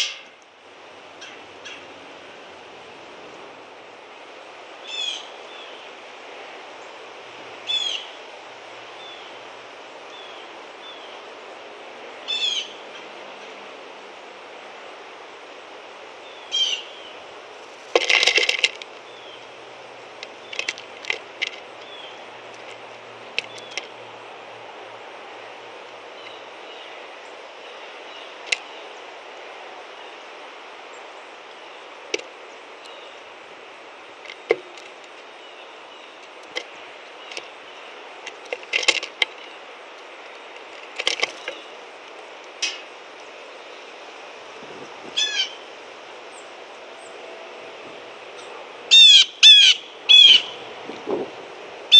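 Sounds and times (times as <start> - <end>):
bird chirp: 21.8 - 22.2, 23.4 - 23.9.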